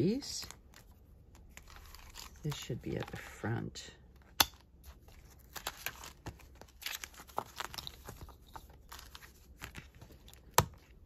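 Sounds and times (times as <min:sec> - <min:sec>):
paper and plastic pages rustling: 0:00.0 - 0:11.0.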